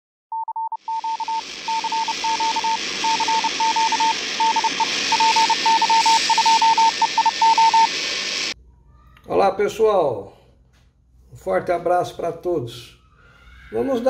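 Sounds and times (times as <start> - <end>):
morse code beeping: 0.3 - 8.5
radio static hiss: 0.9 - 8.6.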